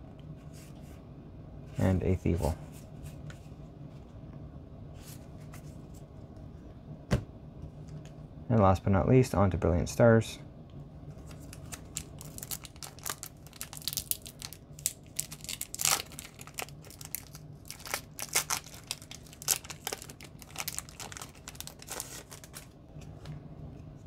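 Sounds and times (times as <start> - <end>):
foil wrapper tearing and crinkling: 11.3 - 22.8.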